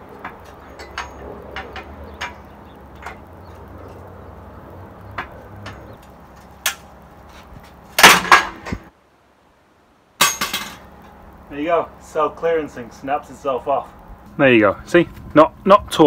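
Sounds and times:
loud metallic clatter: 0:00.2 - 0:03.3, 0:07.9 - 0:08.9, 0:10.2 - 0:10.9
metal ticks and clicks: 0:00.2 - 0:04.1.

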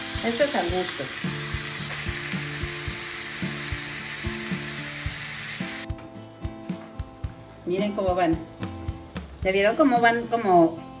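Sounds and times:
ground beef sizzling in a skillet: 0:00.0 - 0:06.0
soft background music: 0:00.0 - 0:11.0.

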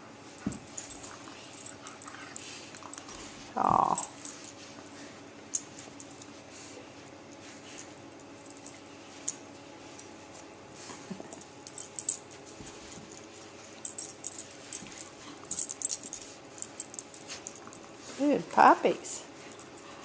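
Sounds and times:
dogs play-wrestling: 0:00.0 - 0:18.3, 0:19.3 - 0:20.0
collar and leash jingling: 0:00.4 - 0:03.2, 0:11.3 - 0:18.2.

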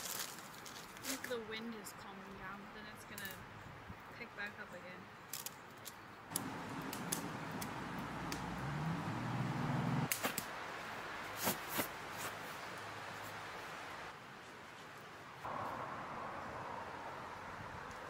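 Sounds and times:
sharp clicks: 0:05.3 - 0:08.6
wind gusting: 0:06.3 - 0:10.1, 0:15.5 - 0:18.0.

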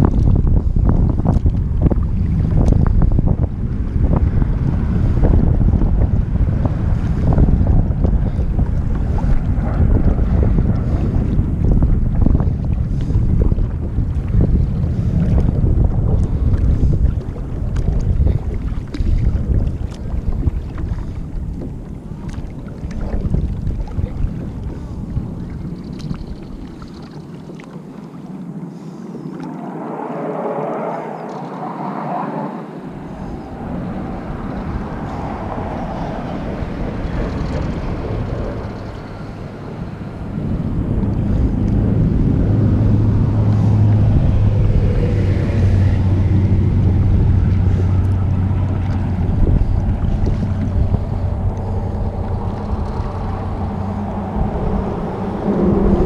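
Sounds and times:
water splashing: 0:00.0 - 0:56.0
wind buffeting microphone: 0:00.0 - 0:56.0
steady low hum: 0:28.3 - 0:56.0.

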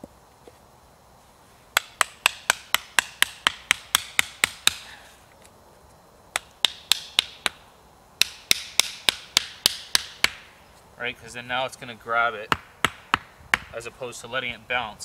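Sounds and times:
hatchet knocking wooden stake: 0:01.8 - 0:04.9, 0:06.3 - 0:07.6, 0:08.2 - 0:10.5, 0:12.5 - 0:13.8.

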